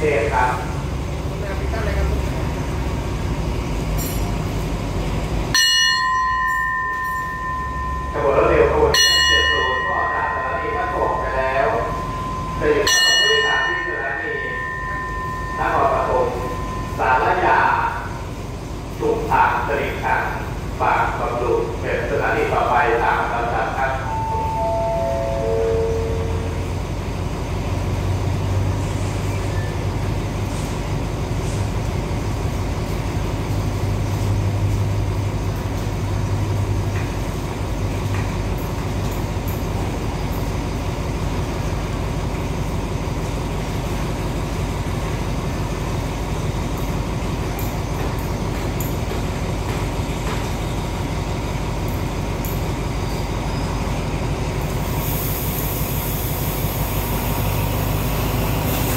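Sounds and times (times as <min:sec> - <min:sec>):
diesel train engines idling: 0:00.0 - 0:58.9
descending public-address chime: 0:05.6 - 0:26.8.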